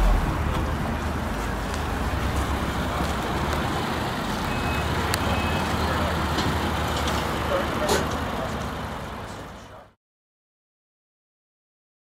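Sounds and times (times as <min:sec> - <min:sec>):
car engine idling low: 0:00.0 - 0:09.8.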